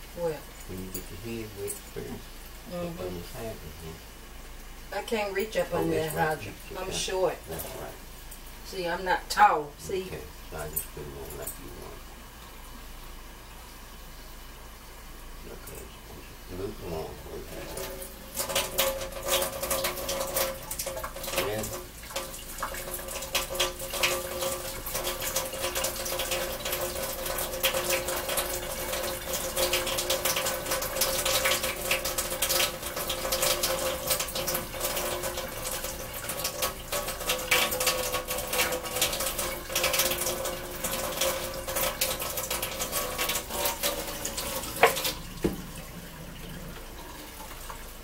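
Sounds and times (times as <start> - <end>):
faucet running into steel sink: 16.8 - 48.0
water splashing over hair: 17.4 - 48.0.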